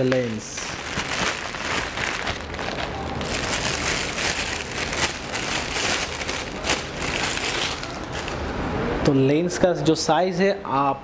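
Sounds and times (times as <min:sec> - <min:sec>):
plastic wrapping crinkling: 0:00.0 - 0:08.5.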